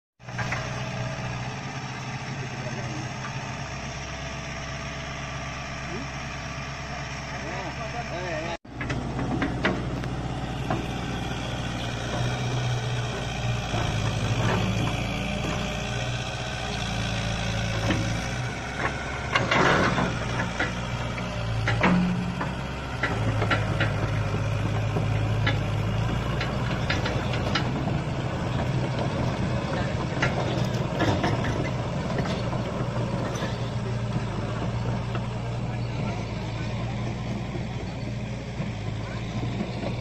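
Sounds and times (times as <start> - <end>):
excavator diesel engine running: 0.2 - 40.0
short knocks and clanks: 8.7 - 16.2, 17.1 - 35.4.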